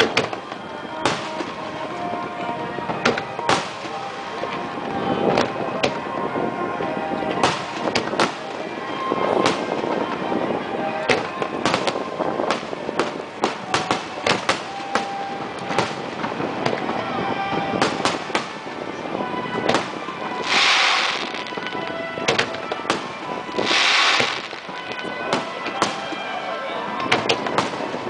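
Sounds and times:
fireworks bursting with sharp bangs: 0.0s - 1.8s, 3.0s - 4.3s, 7.3s - 8.6s, 9.4s - 10.1s, 11.1s - 17.0s, 17.7s - 18.8s, 19.6s - 26.3s, 27.0s - 28.0s
hissing rushes: 20.4s - 21.7s, 23.6s - 24.8s.

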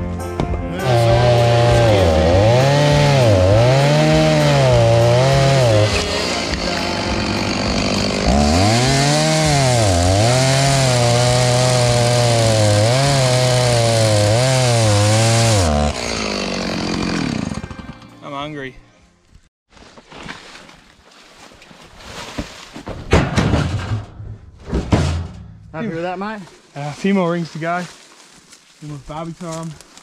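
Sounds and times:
chainsaw cutting log: 0.8s - 18.0s.

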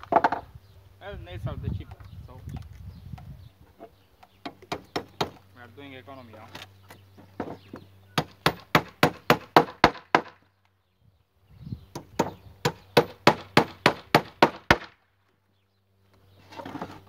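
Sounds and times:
hammer driving nails into wood: 4.4s - 5.4s, 8.2s - 10.4s, 11.9s - 14.9s.

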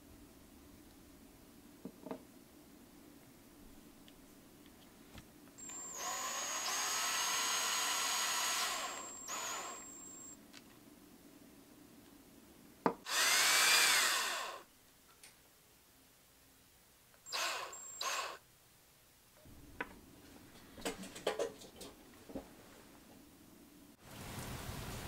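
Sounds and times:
cordless drill motor whine: 5.6s - 10.4s, 13.1s - 14.6s, 17.3s - 18.4s.

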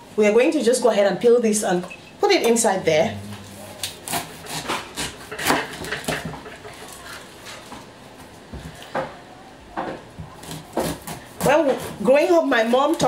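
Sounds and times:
knife cutting pineapple rind: 3.4s - 7.7s, 10.3s - 13.0s.

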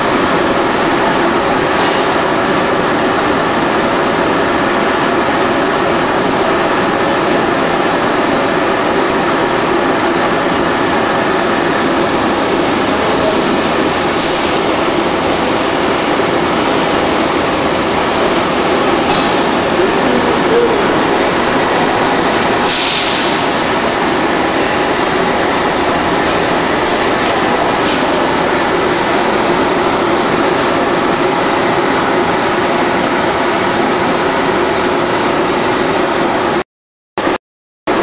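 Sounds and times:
pneumatic hiss: 14.2s - 14.6s, 22.6s - 23.7s.

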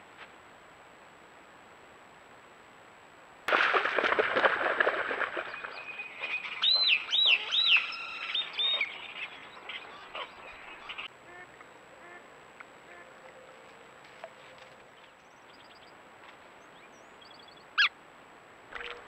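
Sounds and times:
whistled bird calls: 5.4s - 11.1s
marsh birds and ducks chattering: 5.4s - 11.4s.

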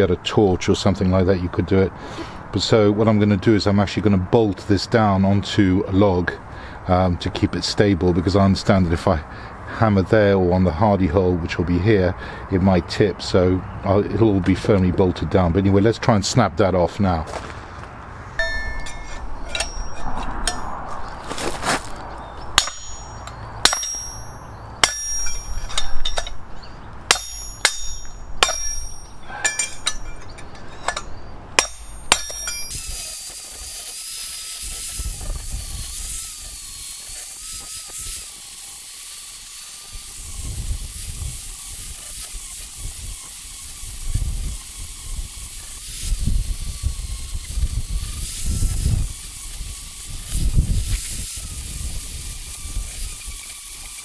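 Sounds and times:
hammer striking chisel on steel: 18.4s - 20.9s, 22.6s - 26.4s, 27.1s - 32.9s
angle grinder grinding steel: 18.4s - 54.0s.

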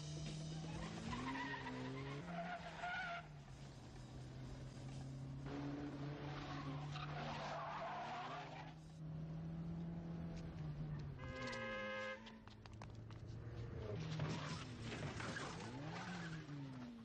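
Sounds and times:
tyres skidding: 0.0s - 17.0s.

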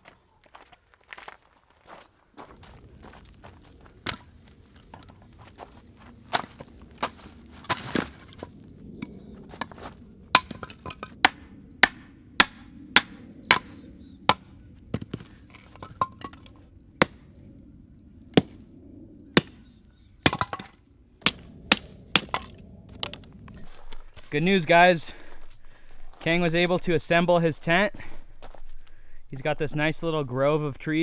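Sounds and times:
hatchet chopping wood: 10.3s - 15.2s, 15.8s - 17.2s, 19.4s - 19.6s, 20.2s - 22.5s.

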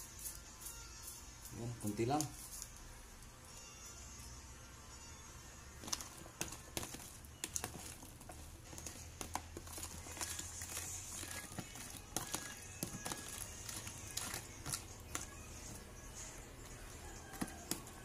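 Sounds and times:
spoon knocking plastic tub: 5.8s - 15.3s.

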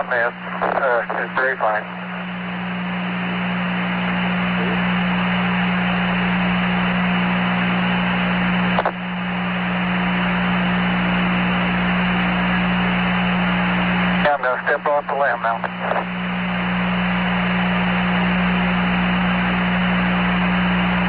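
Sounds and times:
low hum: 0.0s - 21.0s
radio static: 0.0s - 21.0s
radio click: 0.5s - 1.8s, 8.7s - 9.0s, 15.4s - 16.1s.

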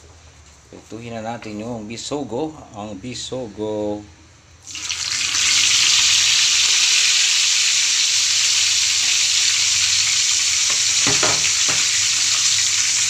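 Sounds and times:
fish sizzling in hot oil: 4.7s - 13.0s
short knocks: 10.7s - 12.0s.

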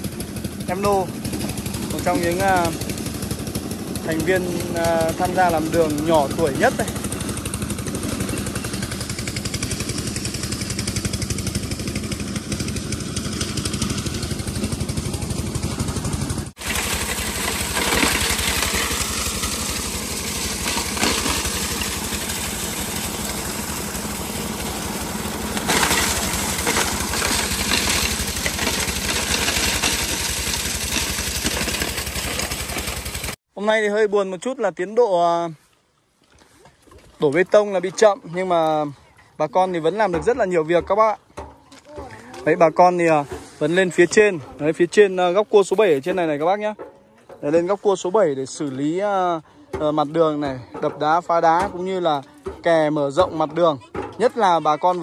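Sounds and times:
small diesel engine chugging: 0.0s - 33.4s, 49.4s - 55.0s
work clatters: 0.4s - 33.4s, 37.2s - 55.0s.

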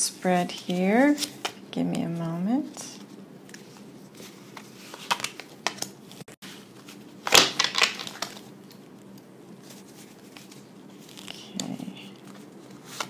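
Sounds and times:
cards snapping and crackling: 4.9s - 5.9s, 7.2s - 9.2s
cards riffling: 7.2s - 8.8s.

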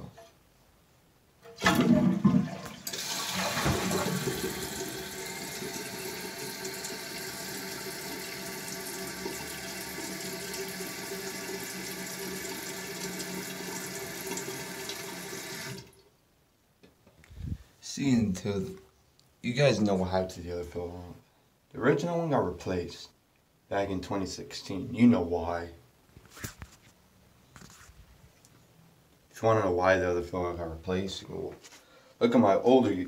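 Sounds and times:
toilet flushing: 1.5s - 16.0s.

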